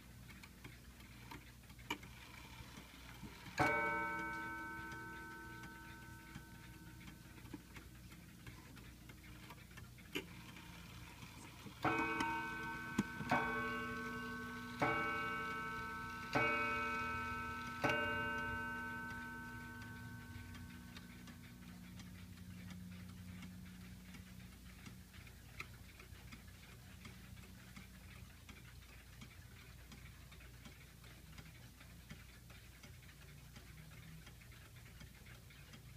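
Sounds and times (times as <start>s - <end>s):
clock ticking: 0.0s - 35.9s
clock click: 0.2s - 35.9s
clock striking: 3.2s - 9.6s, 10.2s - 25.0s.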